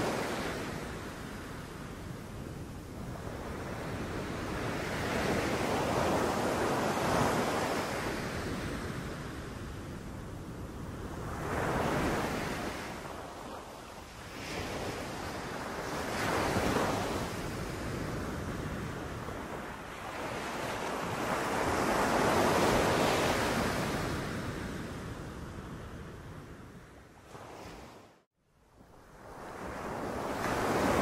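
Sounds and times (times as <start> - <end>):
sea waves breaking on beach: 11.2 - 25.0, 29.2 - 31.0.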